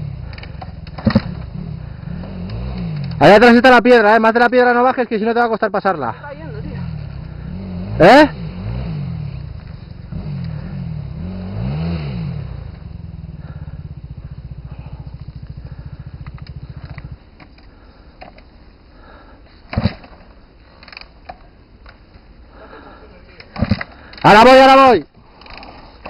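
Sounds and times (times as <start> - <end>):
dirt bike engine revving: 0.0 - 4.1, 6.2 - 18.1.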